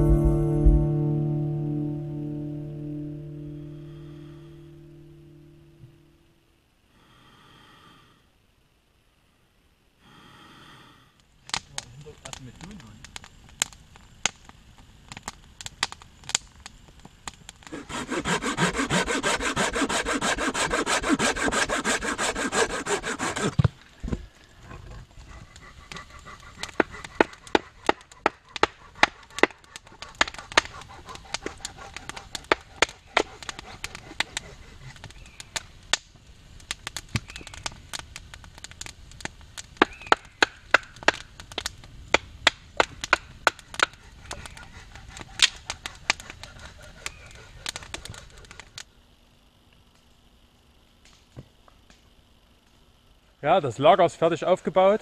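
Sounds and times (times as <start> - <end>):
sharp irregular snaps and knocks: 11.4 - 17.8, 22.7 - 48.9
hand saw cutting wood: 17.6 - 23.7, 26.0 - 35.0.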